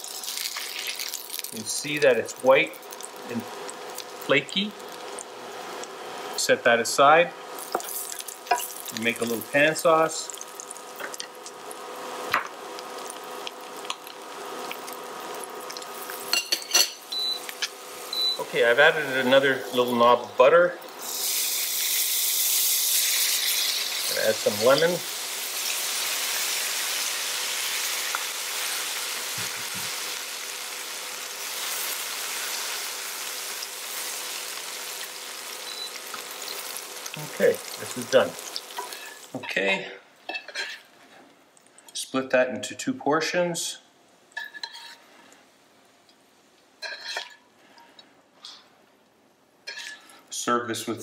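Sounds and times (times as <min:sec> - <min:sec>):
fat sizzling in a pan: 0:00.0 - 0:06.5, 0:07.4 - 0:20.2, 0:20.8 - 0:39.4.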